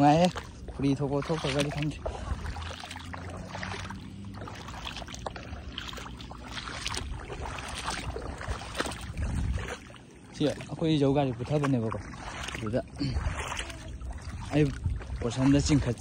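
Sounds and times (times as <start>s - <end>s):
footsteps squelching in mud: 0.0s - 16.0s
low steady rumble: 0.0s - 16.0s.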